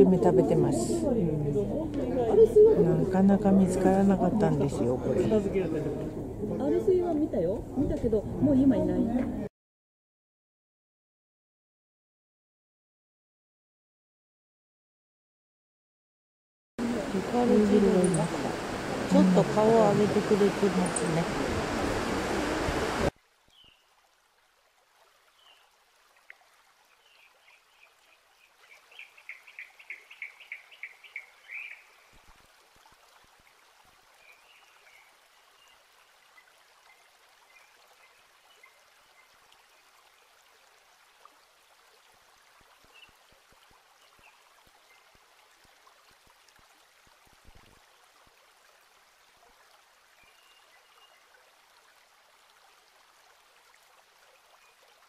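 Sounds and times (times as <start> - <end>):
faint steady hiss: 16.8 - 55.0.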